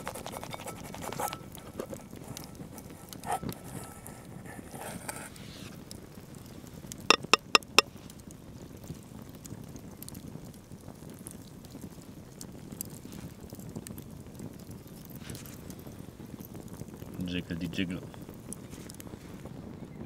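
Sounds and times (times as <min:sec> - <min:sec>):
campfire crackling: 0:00.0 - 0:20.0
sharp fire pops: 0:07.8 - 0:20.0.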